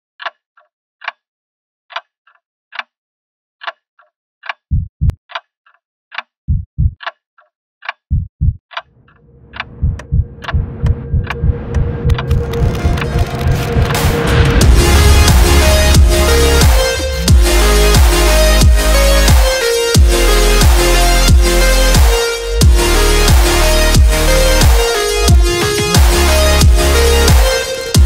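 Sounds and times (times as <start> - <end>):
clock ticking: 4.4 - 7.2, 7.8 - 22.8
deep heartbeat-like thumps: 4.7 - 5.2, 6.5 - 7.0, 8.1 - 8.6, 9.2 - 28.0
wash of noise with low pulsing: 9.1 - 19.0.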